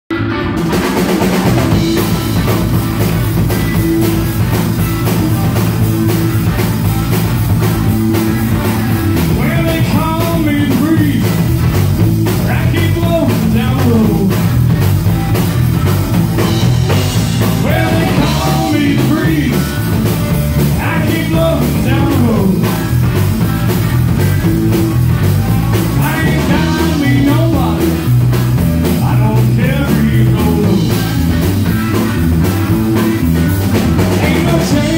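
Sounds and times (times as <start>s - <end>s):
drum kit: 0.1s - 34.9s
electric bass: 0.1s - 34.9s
electric guitar: 0.1s - 34.9s
man singing: 9.2s - 11.5s, 12.4s - 14.6s, 17.4s - 20.0s, 20.7s - 23.0s, 25.8s - 28.2s, 28.9s - 31.3s, 34.1s - 34.9s.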